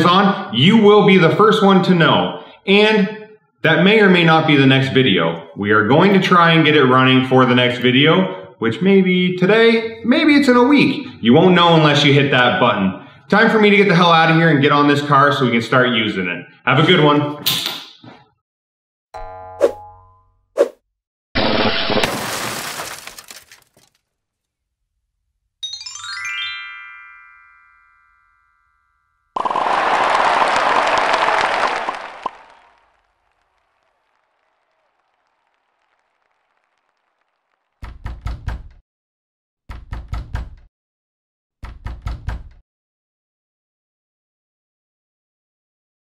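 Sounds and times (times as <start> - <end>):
shattering crash: 21.4 - 24.0
rising run of chime notes: 25.6 - 28.7.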